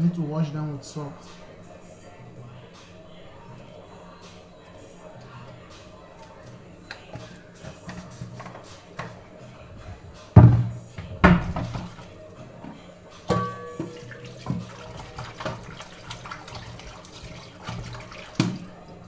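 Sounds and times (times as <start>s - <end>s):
water running: 3.3s - 19.0s
metal pot clanking in sink: 13.3s - 15.8s.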